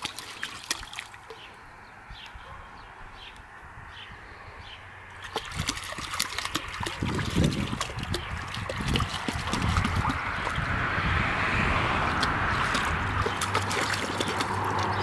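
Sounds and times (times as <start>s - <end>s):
dog splashing in water: 0.0s - 1.5s, 5.2s - 15.0s.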